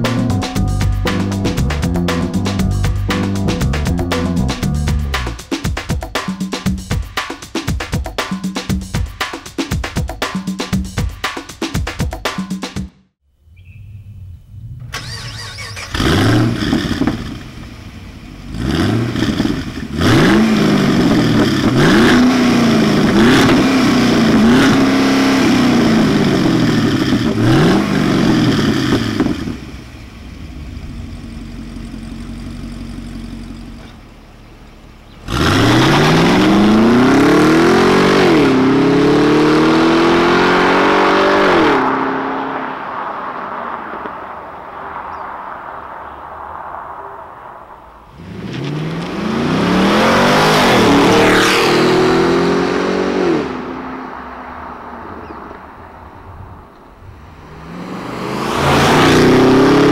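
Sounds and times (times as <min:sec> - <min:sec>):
car engine revving and idling: 0:14.4 - 0:46.7, 0:47.8 - 0:59.9
car accelerating away: 0:14.5 - 0:59.9.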